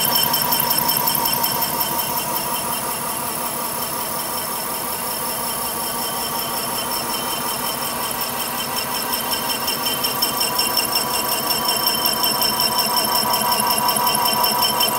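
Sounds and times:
milling machine whine: 0.0s - 14.9s.

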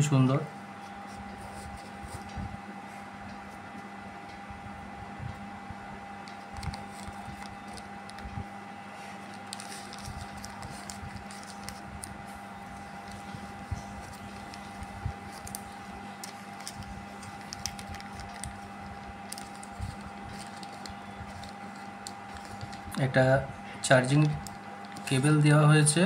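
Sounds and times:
steady hum: 0.0s - 26.0s
paper packet crinkling: 6.2s - 23.1s, 23.8s - 25.4s.

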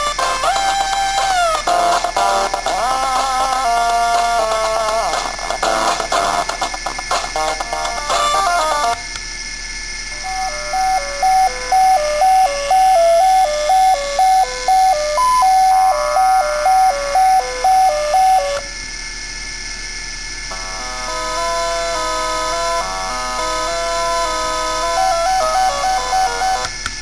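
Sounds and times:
beepy chiptune melody: 0.0s - 9.0s, 23.4s - 26.7s.

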